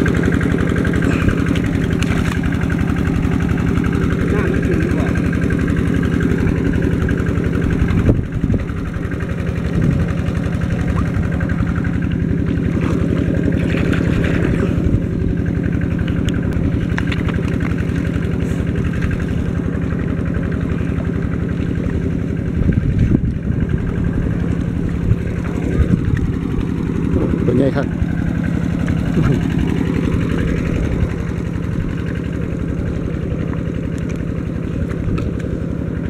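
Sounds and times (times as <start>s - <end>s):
small engine running steadily: 0.0s - 36.0s.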